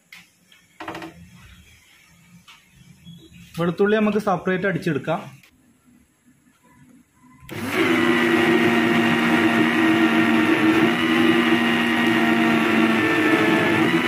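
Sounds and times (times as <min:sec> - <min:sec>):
electric blender grinding: 0:07.5 - 0:14.0.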